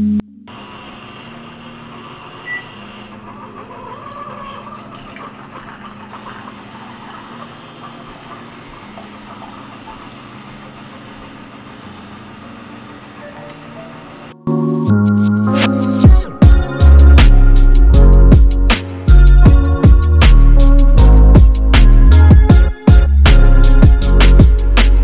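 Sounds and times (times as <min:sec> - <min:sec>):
coffee maker pump humming: 0:00.5 - 0:14.3
coffee streaming into mug: 0:04.2 - 0:10.2.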